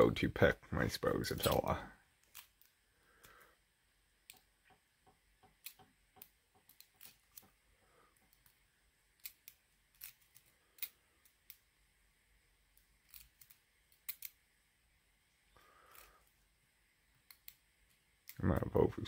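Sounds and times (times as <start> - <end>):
lock pick metallic clicks: 12.8 - 14.4.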